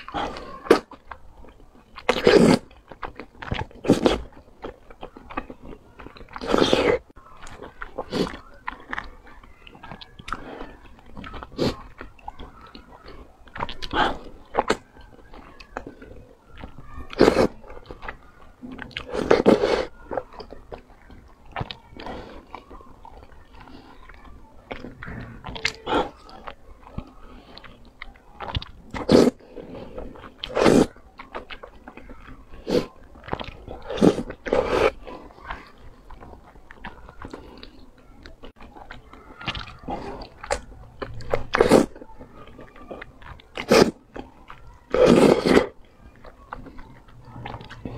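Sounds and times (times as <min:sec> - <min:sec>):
slurping noodles: 0:00.0 - 0:01.0, 0:02.0 - 0:04.5, 0:05.7 - 0:07.2, 0:10.2 - 0:20.2, 0:24.7 - 0:45.9
wet chewing: 0:00.0 - 0:47.9.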